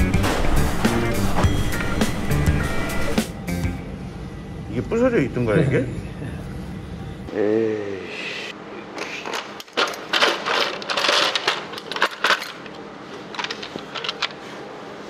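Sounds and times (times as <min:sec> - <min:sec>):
metal tools clinking and rattling: 0:09.1 - 0:14.4.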